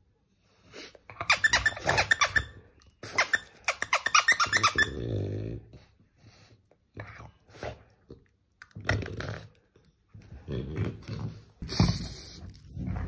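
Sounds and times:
dog grunting and growling: 4.8 - 5.9, 8.8 - 13.0.

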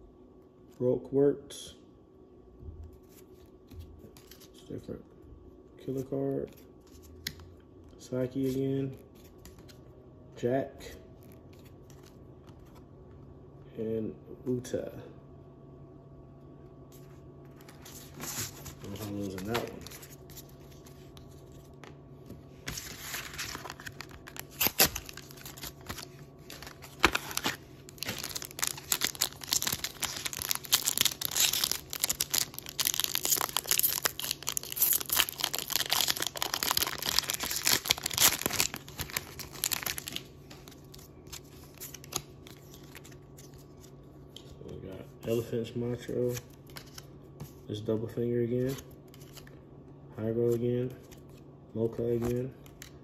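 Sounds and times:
foil crinkling: 22.7 - 43.2
foil wrapper tearing: 23.2 - 40.3.

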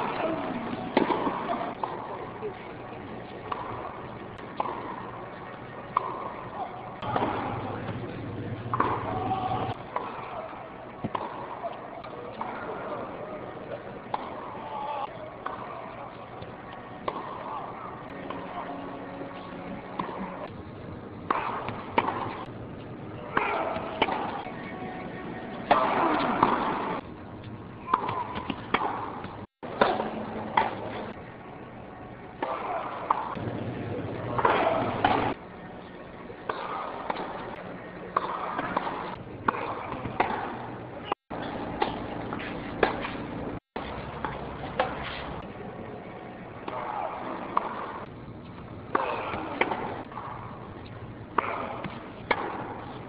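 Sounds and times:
crowd noise: 0.0 - 53.0
steady background noise: 0.0 - 53.0
tennis ball struck by rackets: 0.9 - 2.1, 3.4 - 5.0, 5.9 - 6.3, 8.7 - 9.3, 11.0 - 11.4, 21.2 - 22.5, 23.3 - 24.5, 25.4 - 27.0, 27.9 - 30.8, 36.4 - 40.6, 46.6 - 48.1, 48.9 - 50.6, 51.3 - 53.0
ball bouncing on court: 1.0 - 2.0, 8.7 - 9.3, 25.7 - 27.0.

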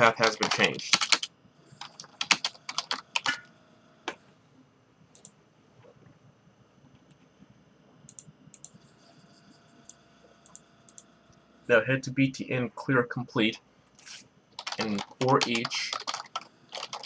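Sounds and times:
keyboard typing: 0.0 - 3.4, 14.5 - 17.0
faint clicks: 8.0 - 8.8, 9.8 - 11.4.

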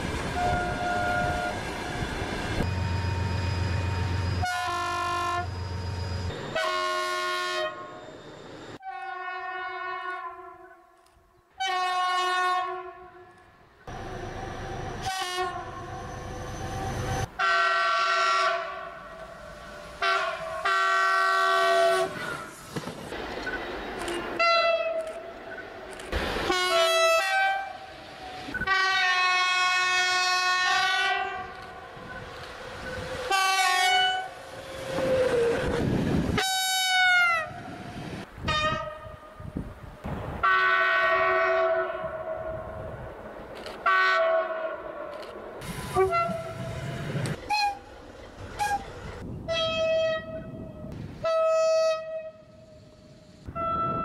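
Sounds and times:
rail running noise: 0.0 - 9.0, 13.1 - 54.0
train horn blasts: 0.4 - 1.6, 4.3 - 5.6, 6.4 - 8.0, 8.8 - 10.8, 11.6 - 13.4, 14.9 - 16.0, 17.2 - 22.3, 26.5 - 27.9, 28.5 - 31.6, 33.3 - 34.4, 36.4 - 37.6, 40.4 - 42.9, 43.8 - 45.1, 45.9 - 46.7, 49.5 - 52.7, 53.5 - 54.0.

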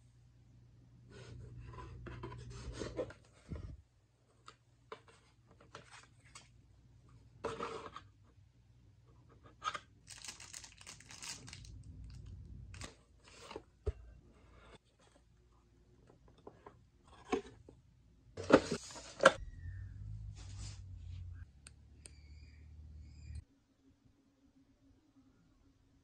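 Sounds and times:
packaging rustling and tearing: 10.0 - 13.4.

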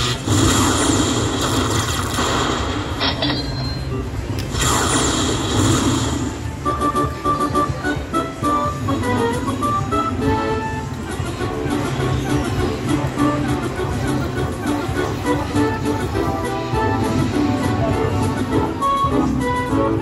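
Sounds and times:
lightning strike sound effects: 0.0 - 3.2, 4.5 - 6.5.

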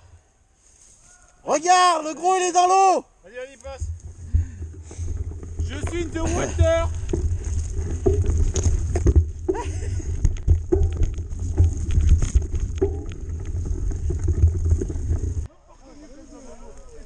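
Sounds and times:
bike rattling over bumps: 3.7 - 15.5
wind rumble on microphone: 3.8 - 15.5.

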